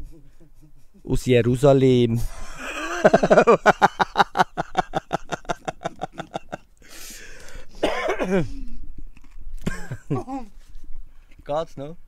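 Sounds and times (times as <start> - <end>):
woman laughing hard: 2.4 - 6.6, 9.7 - 10.5
woman drawing breath: 6.8 - 7.8.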